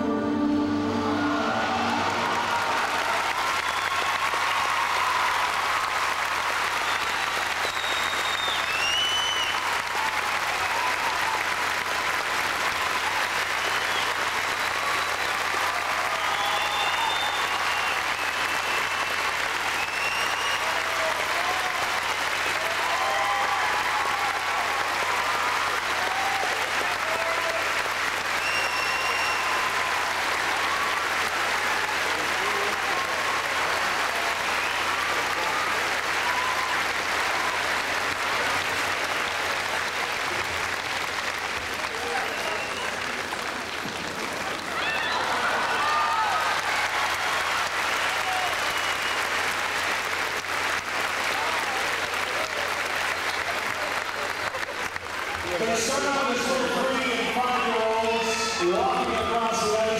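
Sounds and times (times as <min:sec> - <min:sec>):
audience applauding: 0:00.0 - 0:59.9
cries and whistles: 0:06.8 - 0:09.7, 0:16.1 - 0:19.0, 0:19.7 - 0:20.7, 0:28.4 - 0:29.7.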